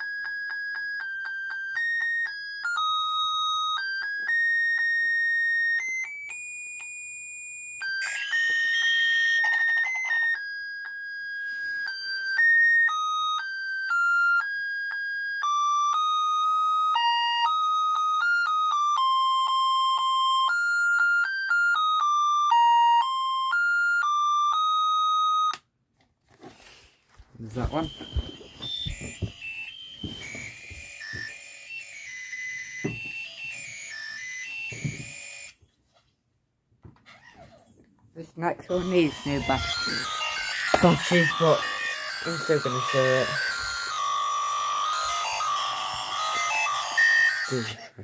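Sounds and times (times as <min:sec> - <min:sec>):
tinny electronic beeping melody: 0:27.4 - 0:35.0.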